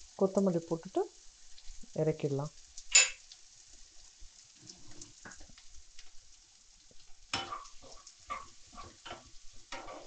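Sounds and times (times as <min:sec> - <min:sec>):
faint sizzle of frying: 0:00.0 - 0:10.0
wooden spatula scraping a pan: 0:06.9 - 0:10.0.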